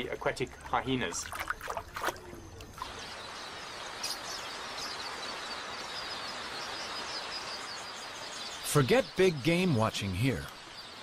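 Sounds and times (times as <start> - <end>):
flock of birds chattering: 2.3 - 11.0
high bird chirps: 2.9 - 11.0.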